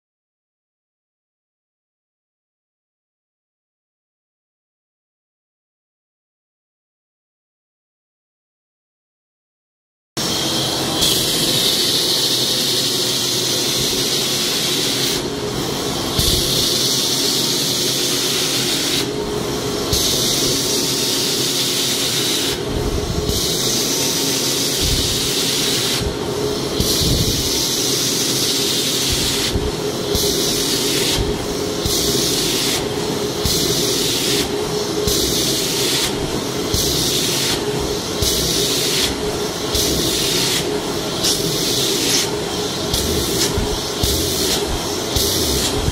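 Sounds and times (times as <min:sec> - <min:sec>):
upholstery tool hissing: 0:10.2 - 0:45.9
motor hum: 0:42.4 - 0:45.9.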